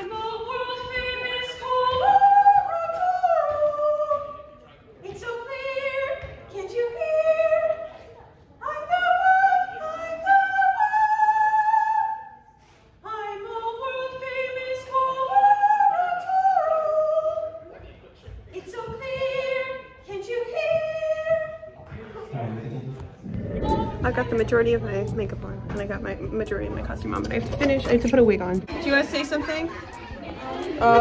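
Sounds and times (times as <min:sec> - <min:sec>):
woman singing unaccompanied: 0:23.3 - 0:31.0.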